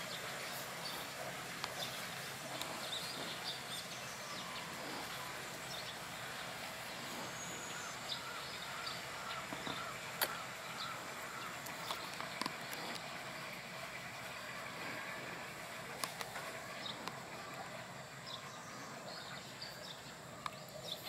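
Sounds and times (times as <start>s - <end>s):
outdoor background noise: 0.0s - 21.0s
faint bird chirps: 1.8s - 12.8s.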